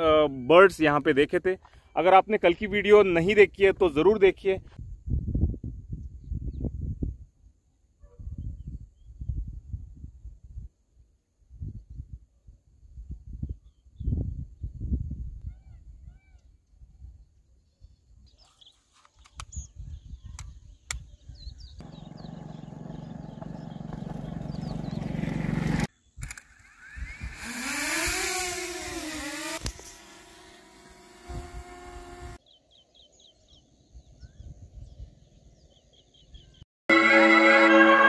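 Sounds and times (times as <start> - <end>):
drone propellers whining: 26.2 - 32.4
faint bird chirps: 32.4 - 36.6
rising hum: 36.9 - 38.0.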